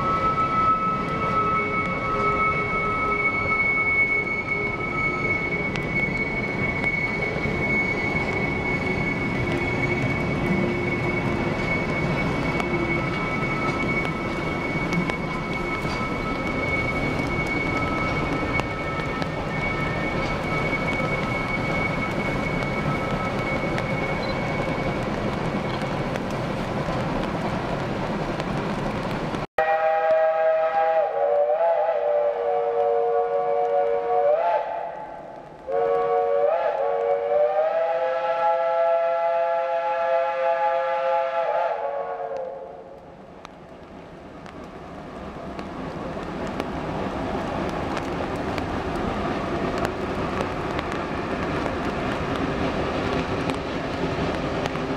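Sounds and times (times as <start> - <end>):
steam locomotive whistle: 0.0 - 25.1, 29.6 - 43.0
high squeal of train wheels: 0.0 - 27.2
train wheels rumbling on rail: 0.0 - 54.9.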